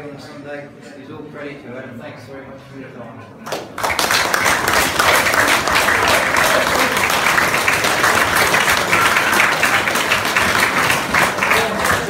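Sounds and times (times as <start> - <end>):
hands clapping close to microphone: 3.4 - 12.0
audience applauding: 3.5 - 12.0.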